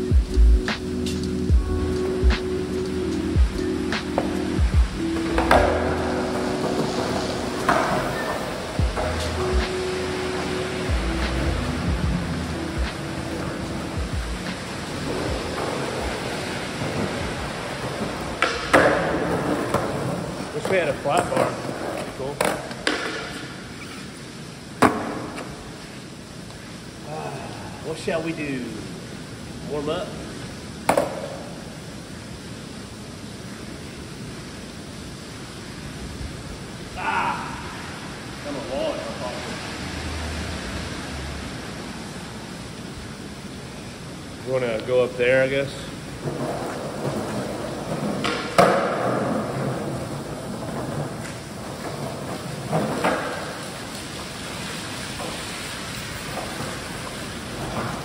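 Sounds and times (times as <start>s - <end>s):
background hiss: 0.0s - 58.0s
rain on pavement: 0.0s - 58.0s
skateboard clacking on concrete: 5.2s - 9.6s, 12.9s - 24.0s, 24.8s - 25.6s, 30.8s - 31.6s, 46.2s - 58.0s.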